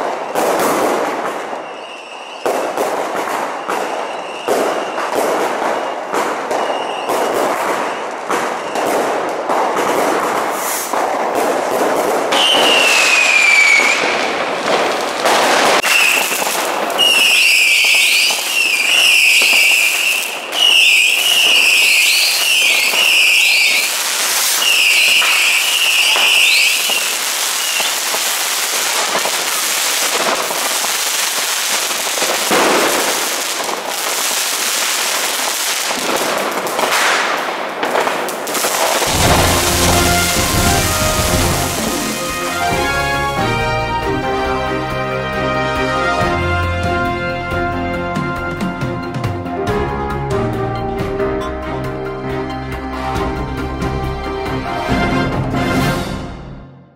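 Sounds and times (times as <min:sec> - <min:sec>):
firework bangs and crackling: 0:00.0 - 0:50.6
long falling whistle: 0:01.6 - 0:02.5, 0:12.4 - 0:14.1, 0:15.8 - 0:23.9
short shrill whistles: 0:01.6 - 0:02.5, 0:03.6 - 0:05.1, 0:06.6 - 0:08.8, 0:12.4 - 0:14.1, 0:15.8 - 0:16.3, 0:17.0 - 0:23.9, 0:24.5 - 0:28.0.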